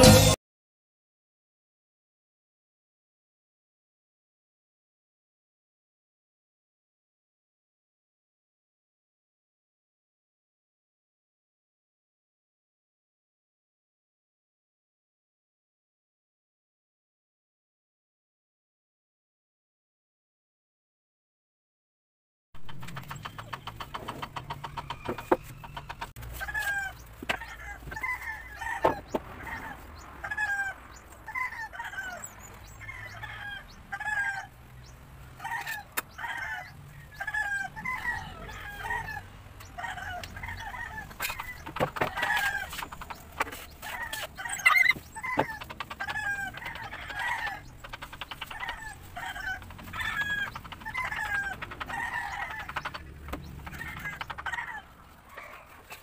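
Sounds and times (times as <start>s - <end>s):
chickens clucking: 22.6s - 56.0s.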